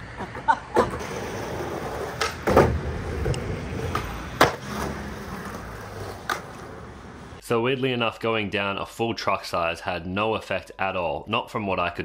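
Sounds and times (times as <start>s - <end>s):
skateboard wheels rolling on stone: 0.0s - 7.4s.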